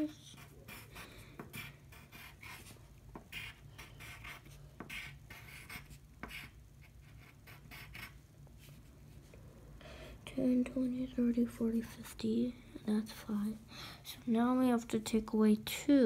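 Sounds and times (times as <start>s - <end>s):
pencil scratching on paper: 0.0s - 8.2s.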